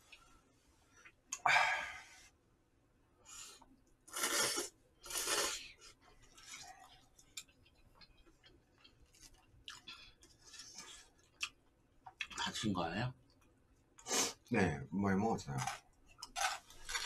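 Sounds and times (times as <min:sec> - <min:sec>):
quiet chewing: 0:03.6 - 0:12.6
noodles being slurped: 0:04.1 - 0:07.3.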